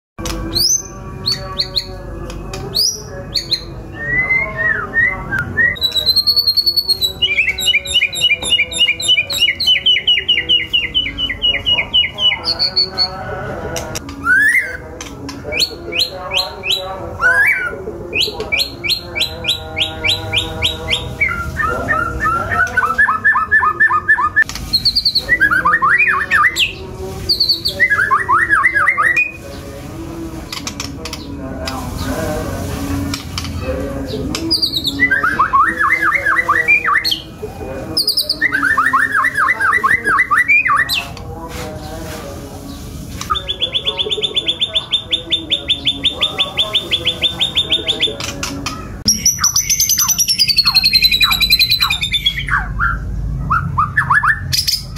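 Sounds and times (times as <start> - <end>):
songbird singing whistled trills: 0.5 - 13.1, 14.1 - 29.4, 43.3 - 54.9.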